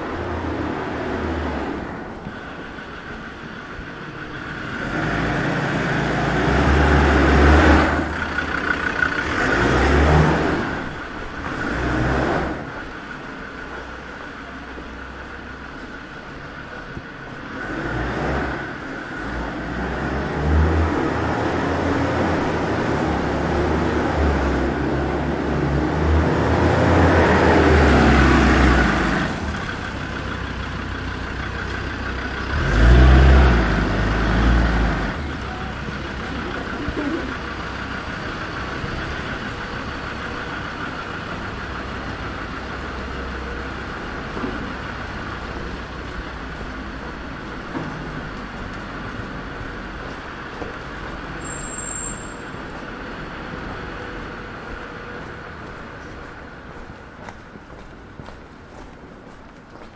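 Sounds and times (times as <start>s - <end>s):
cars passing: 0.0s - 59.9s.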